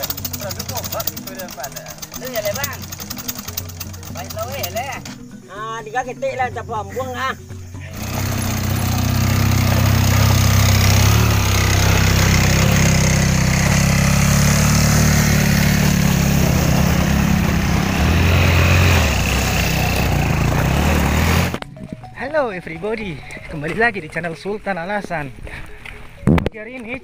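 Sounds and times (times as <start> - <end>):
small engine running: 0.0 - 5.2, 7.9 - 21.6.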